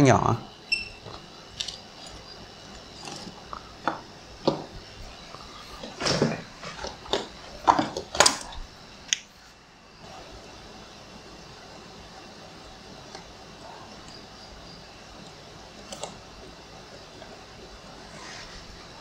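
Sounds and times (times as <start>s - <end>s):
handling knocks and clicks: 5.8s - 8.6s.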